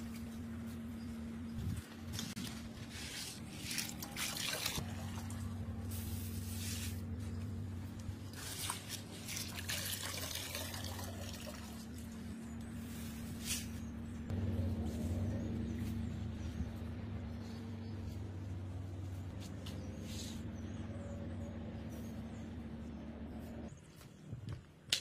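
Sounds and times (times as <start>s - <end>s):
water dripping and trickling: 8.6s - 12.1s.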